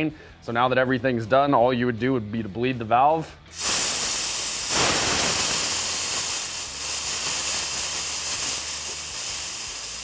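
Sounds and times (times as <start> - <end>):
high-pressure air hissing: 3.5 - 10.0.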